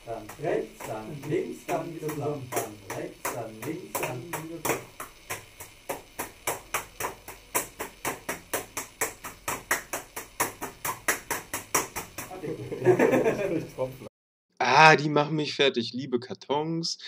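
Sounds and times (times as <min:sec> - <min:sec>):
gloved hands clapping: 0:00.2 - 0:12.4.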